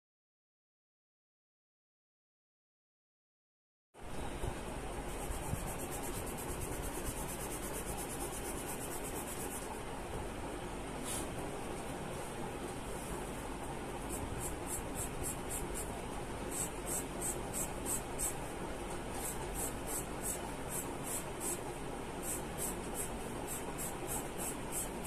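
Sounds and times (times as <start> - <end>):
charcoal pencil scratching on paper: 5.1 - 9.7, 22.2 - 25.0.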